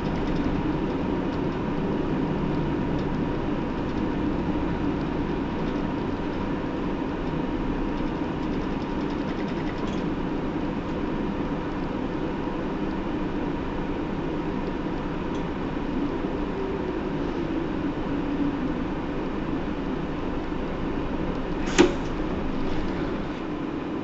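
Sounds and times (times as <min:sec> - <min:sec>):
bus diesel engine running: 0:00.0 - 0:24.0
thin steady whine: 0:10.1 - 0:24.0.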